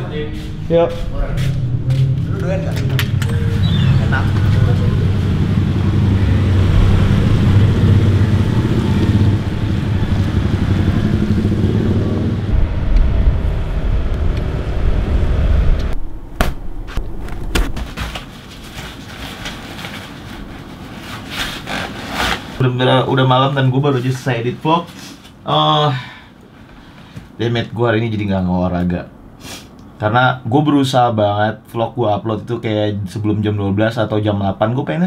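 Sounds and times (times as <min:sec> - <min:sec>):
vehicle engine and road noise: 0:00.0 - 0:22.6.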